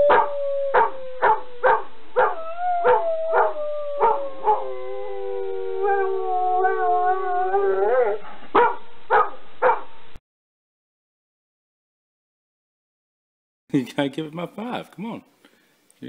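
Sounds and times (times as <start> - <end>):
dog howling: 0.0 - 8.3.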